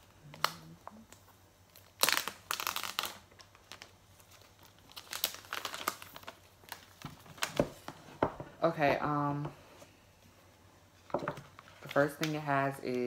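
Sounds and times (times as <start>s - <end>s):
paper and plastic crinkling: 0.0s - 8.3s.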